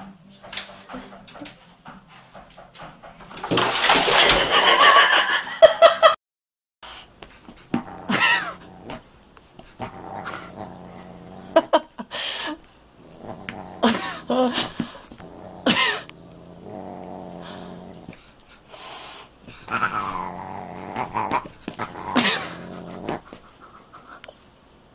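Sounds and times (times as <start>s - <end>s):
dog growling and whining: 9.8s - 11.8s, 13.0s - 18.2s, 19.6s - 23.4s.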